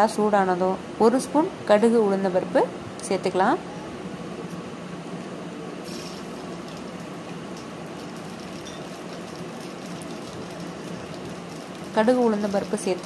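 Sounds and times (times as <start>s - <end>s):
seeds sizzling in hot oil: 5.8s - 13.0s.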